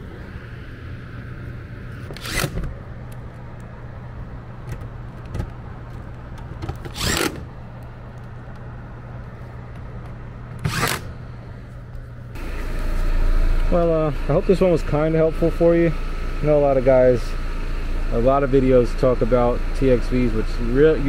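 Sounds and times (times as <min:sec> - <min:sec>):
steady low hum: 0:00.0 - 0:21.0
cordless screwdriver driving screws: 0:06.9 - 0:07.4, 0:10.6 - 0:11.1.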